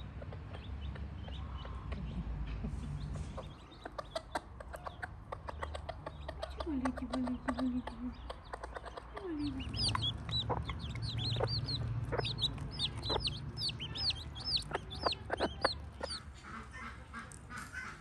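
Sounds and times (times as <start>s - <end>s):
chickens chirping: 0.0s - 18.0s
chickens clucking: 0.0s - 18.0s.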